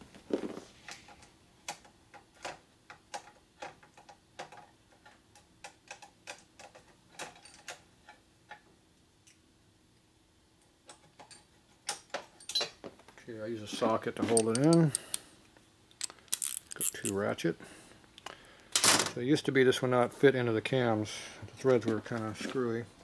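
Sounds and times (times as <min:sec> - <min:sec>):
metal parts and tools clinking: 0:06.6 - 0:07.8, 0:12.3 - 0:12.8, 0:13.8 - 0:15.2, 0:15.9 - 0:17.2.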